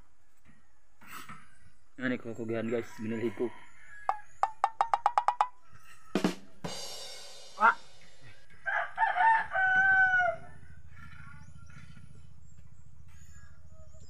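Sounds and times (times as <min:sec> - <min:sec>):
rooster crowing: 0:02.8 - 0:04.4, 0:05.4 - 0:06.8, 0:08.6 - 0:11.0
sharp knock: 0:04.1 - 0:05.6.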